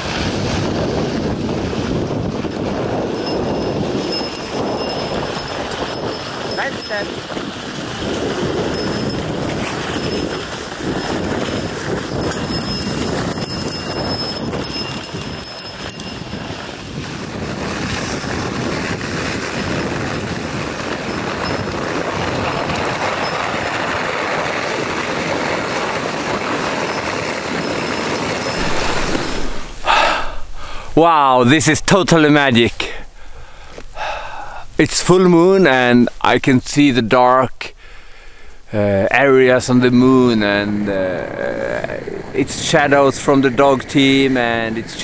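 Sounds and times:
sled runners hissing on snow: 0:00.0 - 0:30.9
sled rattling: 0:00.0 - 0:32.6, 0:39.1 - 0:45.0.

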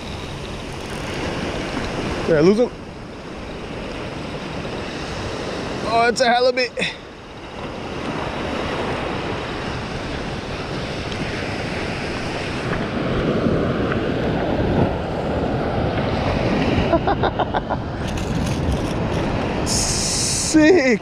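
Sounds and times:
surf washing over sand: 0:00.0 - 0:21.0
wind buffeting microphone: 0:07.2 - 0:21.0.

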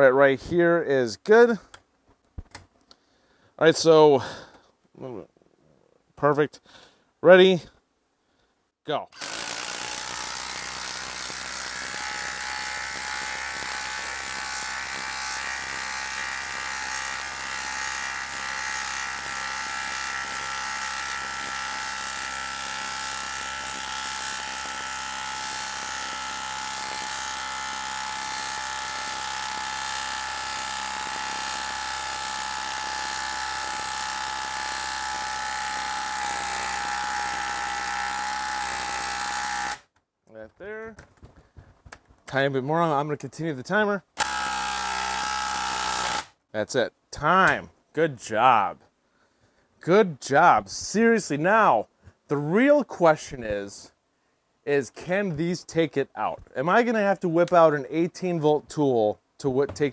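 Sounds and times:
impact driver hammering: 0:09.2 - 0:39.8, 0:44.2 - 0:46.3.

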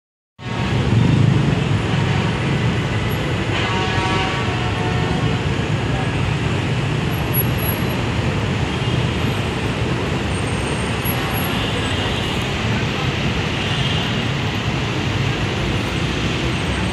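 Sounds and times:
traffic engine rumble: 0:00.4 - 0:16.9
vehicle horn: 0:03.5 - 0:05.4.

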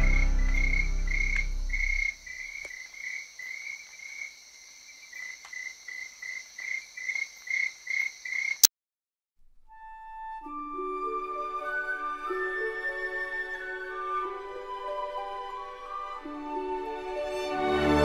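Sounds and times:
loud low-pitched drone: 0:00.0 - 0:02.1
high cricket-like chirping: 0:00.0 - 0:08.7.

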